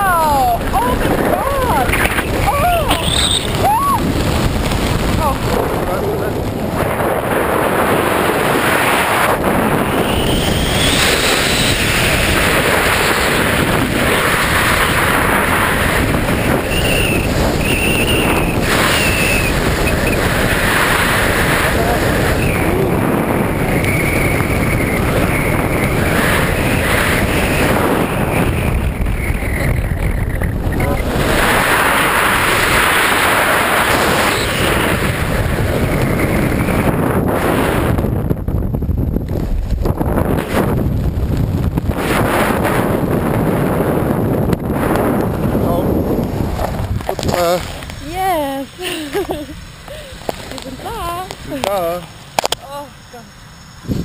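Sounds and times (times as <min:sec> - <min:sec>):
wind rushing over microphone: 0:00.0 - 0:54.0
high whistling tones: 0:02.9 - 0:03.9, 0:09.9 - 0:12.4, 0:16.6 - 0:20.2, 0:23.6 - 0:25.9.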